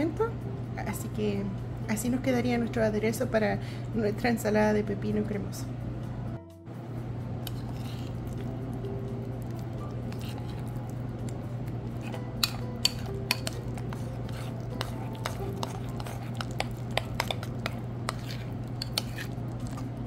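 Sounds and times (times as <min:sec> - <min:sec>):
steady low hum: 0:00.0 - 0:20.0
spoon clinking in ceramic bowl: 0:12.0 - 0:19.3.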